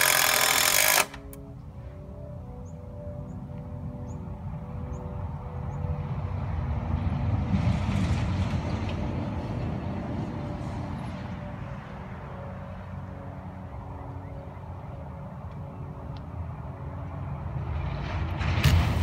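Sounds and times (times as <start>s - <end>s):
truck passing with low rumble: 1.5s - 19.0s.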